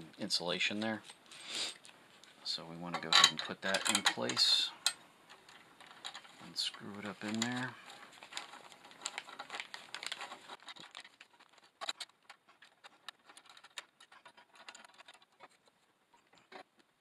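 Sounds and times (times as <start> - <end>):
metal connectors clicking and scraping: 0.7 - 16.9
plastic bag crinkling: 5.5 - 15.8.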